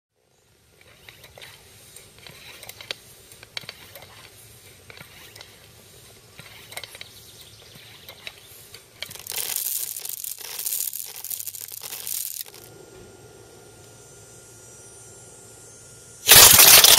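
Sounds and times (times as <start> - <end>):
plastic pellets rattling: 9.0 - 12.7, 16.3 - 16.9.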